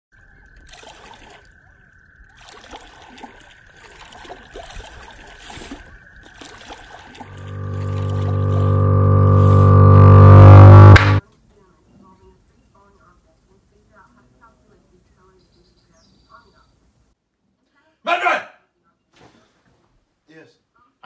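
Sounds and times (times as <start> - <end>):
underwater bubbling and trickling: 0.1 - 10.9
low buzzing horn-like drone: 7.2 - 11.2
steady high tone: 7.2 - 11.2.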